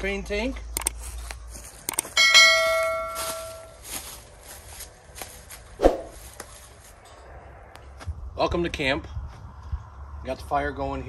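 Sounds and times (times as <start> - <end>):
footsteps on grass: 0.9 - 7.0
bell chime sound effect: 2.2 - 3.8.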